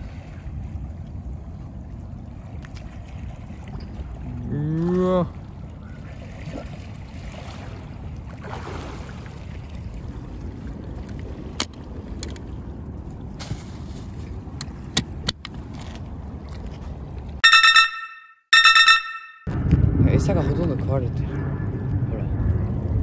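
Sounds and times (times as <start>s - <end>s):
electronic chime tones: 17.4s - 19.5s
low outdoor rumble: 19.5s - 23.0s.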